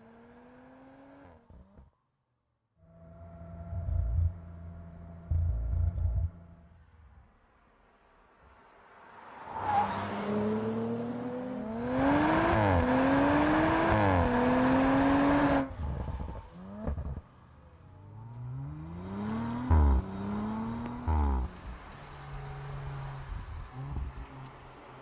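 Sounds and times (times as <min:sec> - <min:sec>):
car engine accelerating: 0:02.9 - 0:06.8, 0:09.7 - 0:25.0.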